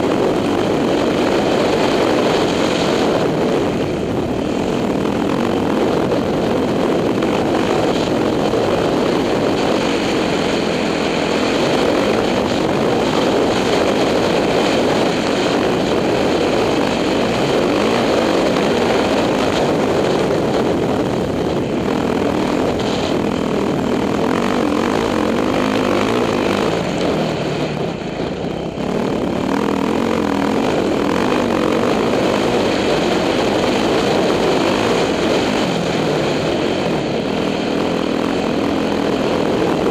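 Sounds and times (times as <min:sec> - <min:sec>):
dirt bike engine under throttle: 0:00.0 - 0:39.9.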